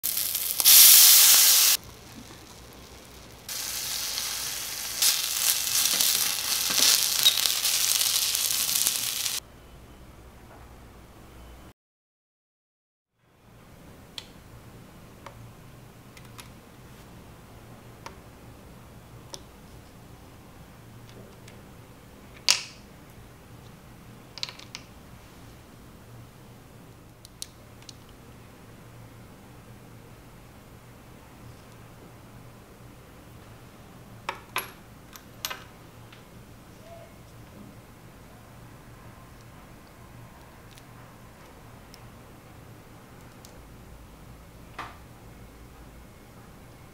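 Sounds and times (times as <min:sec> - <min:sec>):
food sizzling in a wok: 0:00.0 - 0:09.4
water hissing on hot pan: 0:00.0 - 0:09.4.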